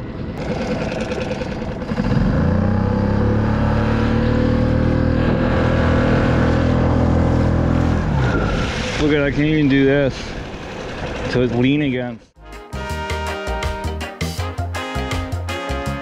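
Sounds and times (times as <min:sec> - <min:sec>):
outboard motor running: 0:00.4 - 0:05.4, 0:10.4 - 0:11.8.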